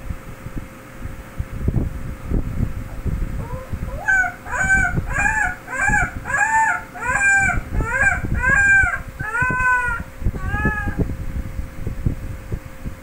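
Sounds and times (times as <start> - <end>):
puppy whimpering yelps: 3.4 - 11.0.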